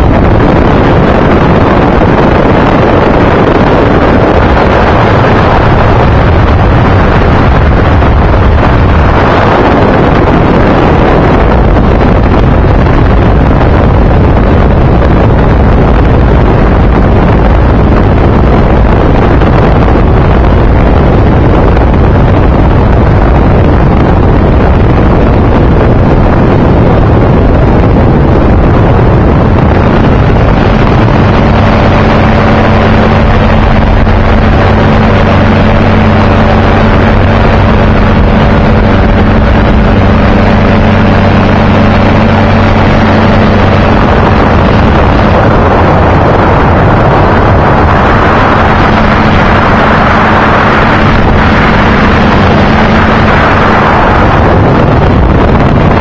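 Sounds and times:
aircraft engine droning: 0.0 - 56.0
wind rush on microphone: 0.0 - 56.0.

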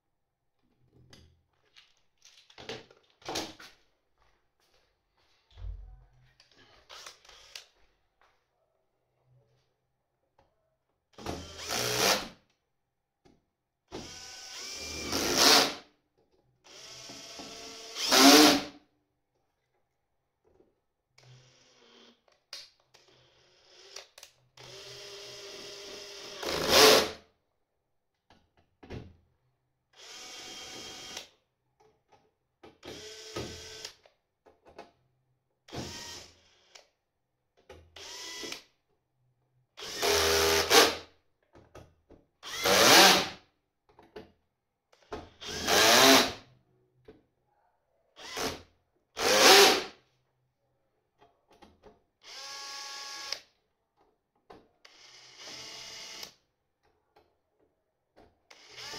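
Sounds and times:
cordless drill driving screws: 6.9 - 7.8, 11.2 - 12.3, 13.9 - 15.8, 16.6 - 18.7, 21.2 - 22.2, 23.0 - 27.2, 30.0 - 31.4, 32.8 - 34.1, 35.7 - 36.9, 38.0 - 38.7, 39.8 - 41.0, 42.4 - 43.4, 45.3 - 46.4, 48.2 - 49.9, 52.2 - 53.5, 54.8 - 56.4, 58.5 - 58.9.

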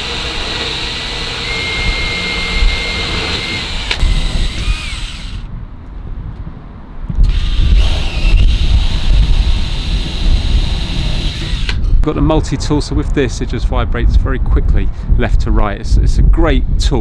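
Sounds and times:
cordless drill whining: 0.0 - 5.5, 7.2 - 12.0.

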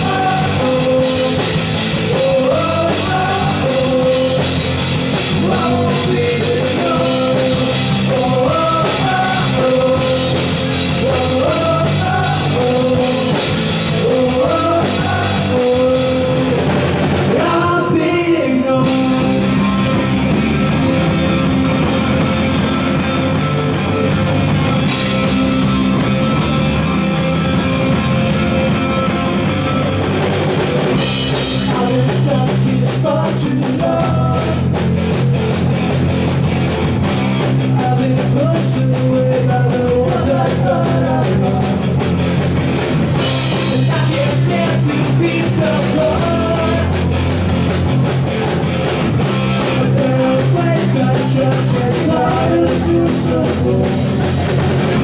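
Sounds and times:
person singing: 0.0 - 20.0, 31.3 - 34.8, 37.6 - 42.1, 43.2 - 47.2, 49.6 - 55.0
bass guitar: 0.0 - 55.0
drum kit: 0.0 - 55.0
electric guitar: 0.0 - 55.0.

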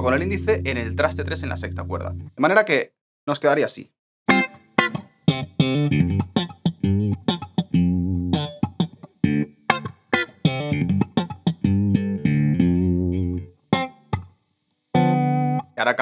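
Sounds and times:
slap-style funk electric guitar: 4.3 - 14.3.

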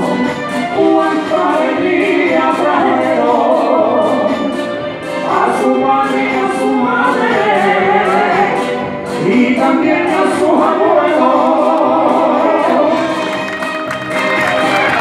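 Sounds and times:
man singing through microphone: 5.2 - 13.2.

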